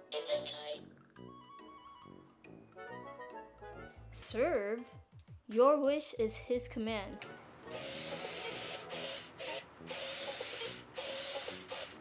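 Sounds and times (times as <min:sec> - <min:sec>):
toy robot motor whirring: 0:07.7 - 0:12.0.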